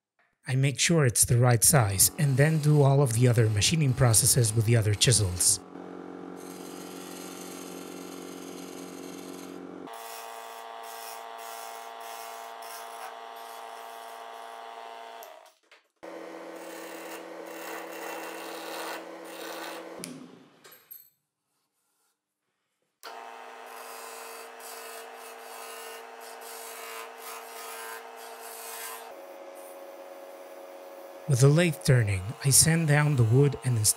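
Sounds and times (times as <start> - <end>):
chisel scraping spinning wood: 2.1 - 5.5, 16.6 - 20.0, 23.2 - 30.6, 31.2 - 33.9
lathe motor humming: 2.1 - 9.8, 16.1 - 20.0, 23.1 - 33.9.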